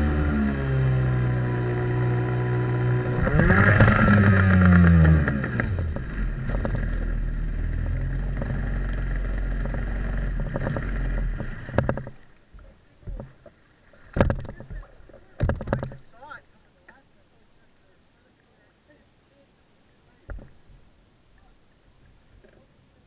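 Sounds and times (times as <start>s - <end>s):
outboard jet motor idling: 0.0s - 13.5s.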